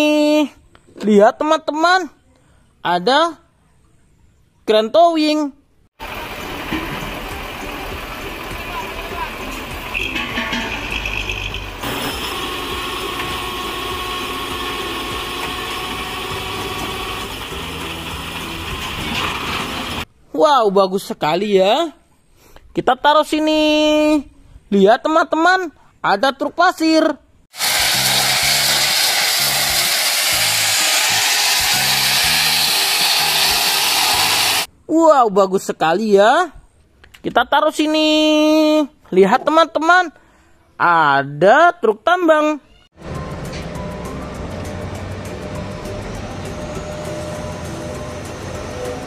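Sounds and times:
heavy truck engine running: 0:06.0 - 0:20.0, 0:27.6 - 0:34.7, 0:43.0 - 0:49.0
gravel pouring from truck bed: 0:27.6 - 0:34.7.

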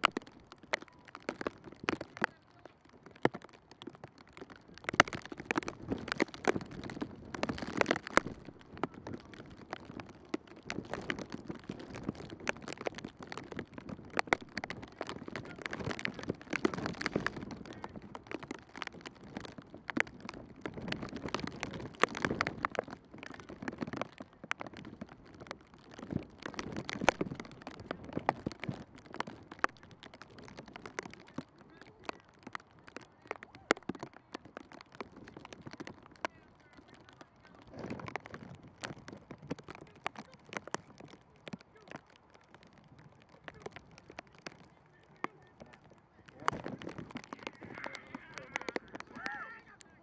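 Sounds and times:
footballs being kicked: 0:00.0 - 0:50.0.

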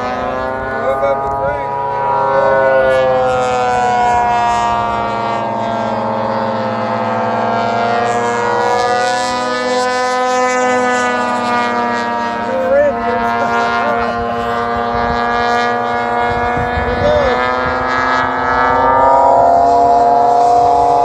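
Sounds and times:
model airplane engines droning: 0:00.0 - 0:21.0.

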